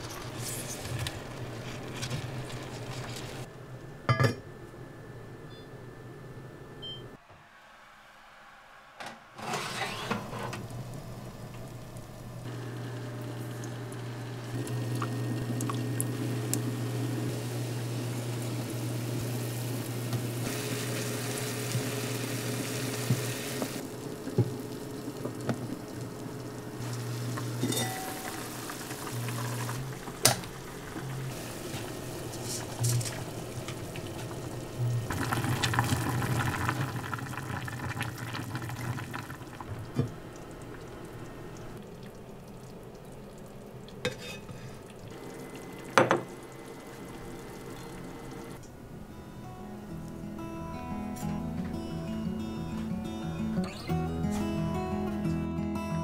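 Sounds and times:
induction cooktop humming: 0:00.0 - 0:53.0
liquid simmering in a frying pan: 0:10.7 - 0:48.6
glass container and lid clinking: 0:27.6 - 0:28.3.

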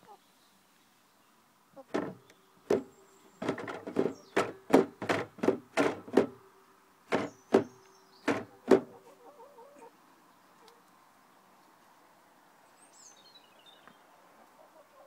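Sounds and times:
sliding door rattling in metal frame: 0:01.9 - 0:06.4, 0:07.1 - 0:07.7, 0:08.3 - 0:08.9.

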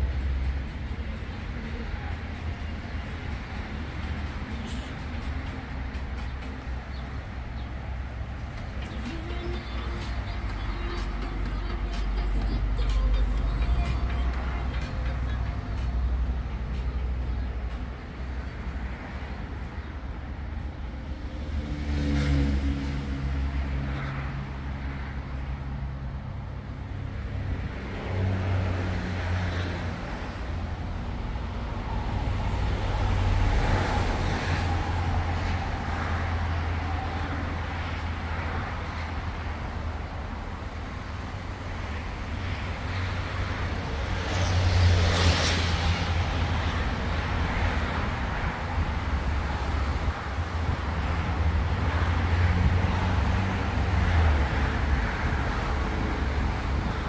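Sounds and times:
cars driving past: 0:00.0 - 0:57.0
vehicle passing close: 0:21.3 - 0:23.9.

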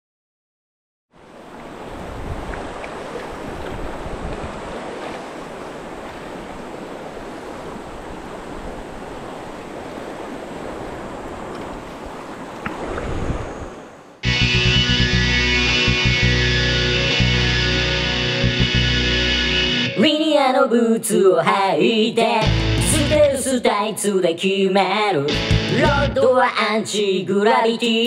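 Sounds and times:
river current rushing and splashing: 0:01.2 - 0:14.2
wind noise on microphone: 0:01.9 - 0:04.8, 0:12.6 - 0:13.8
music: 0:14.2 - 0:20.0, 0:22.4 - 0:23.5, 0:25.2 - 0:27.1.

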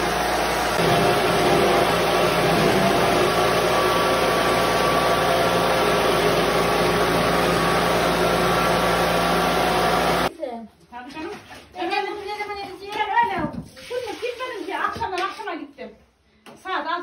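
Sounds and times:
pulping machine motor humming: 0:00.0 - 0:10.3.

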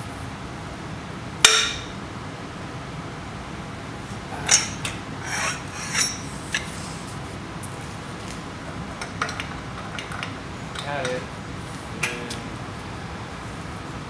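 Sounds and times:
metal tools clinking and scraping: 0:04.4 - 0:06.8.

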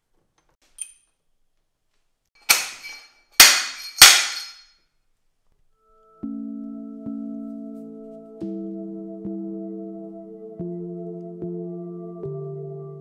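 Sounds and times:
sharp metallic knocks: 0:02.4 - 0:04.6.

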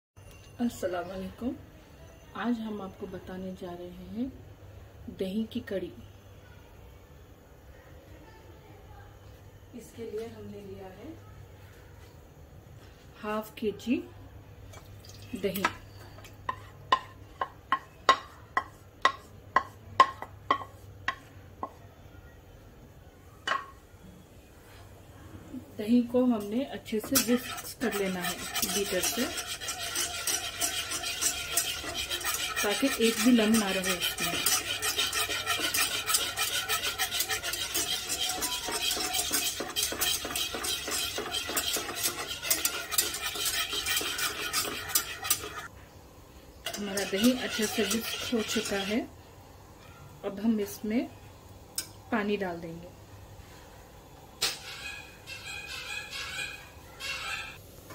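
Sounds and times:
spatula knocking ceramic bowl: 0:16.5 - 0:21.3, 0:46.7 - 0:48.9
whisk scraping metal pot: 0:26.9 - 0:45.7, 0:46.6 - 0:49.1.

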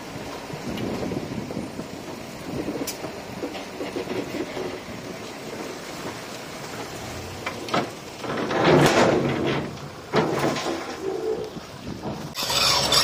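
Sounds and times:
soil and rock sliding: 0:00.0 - 0:13.0
rushing crash of rocks: 0:05.9 - 0:13.0.

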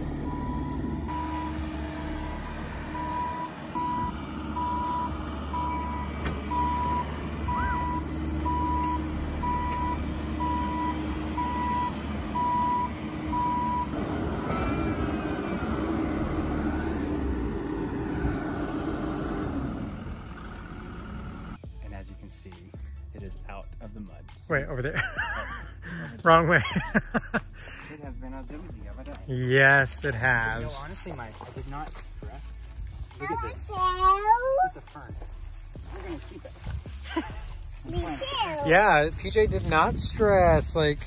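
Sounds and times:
excavator alarm beeping: 0:00.0 - 0:16.6
tractor engine running: 0:00.0 - 0:21.6, 0:28.4 - 0:41.0
diesel engine running: 0:00.0 - 0:21.7, 0:29.7 - 0:41.0.

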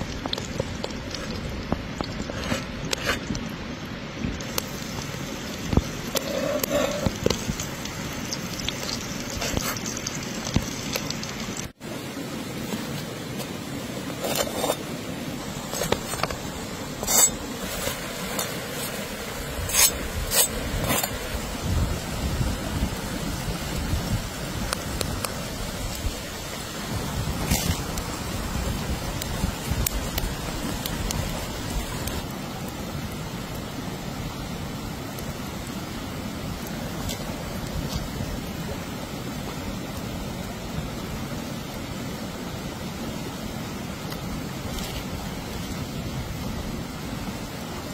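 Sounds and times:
stream running over rocks: 0:00.0 - 0:47.9
knife blade scraping and clinking: 0:17.0 - 0:17.4.

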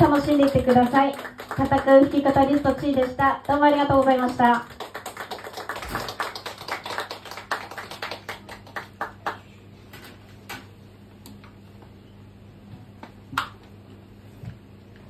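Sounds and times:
audience clapping: 0:00.0 - 0:09.6.

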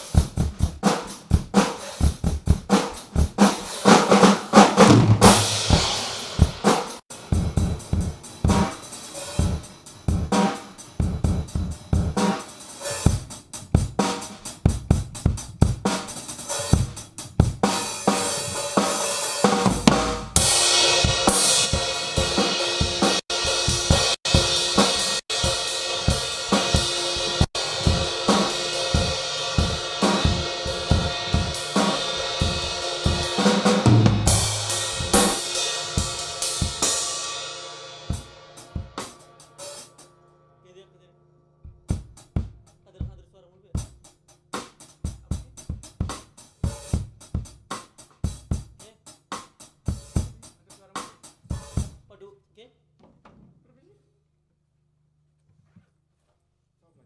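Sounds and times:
drum kit playing: 0:00.0 - 0:40.8, 0:41.6 - 0:52.2.

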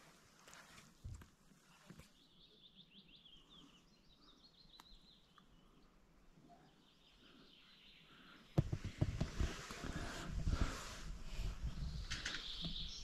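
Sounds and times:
songbird chirping: 0:00.4 - 0:13.0
faint click: 0:04.7 - 0:05.5.

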